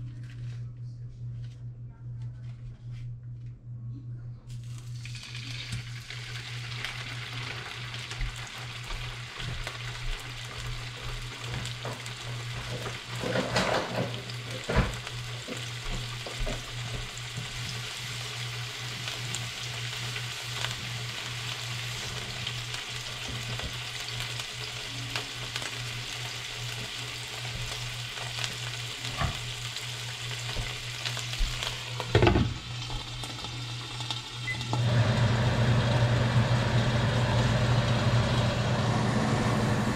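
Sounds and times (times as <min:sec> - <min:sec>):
low hum: 0:00.0 - 0:06.2
food sizzling in a frying pan: 0:04.6 - 0:39.4.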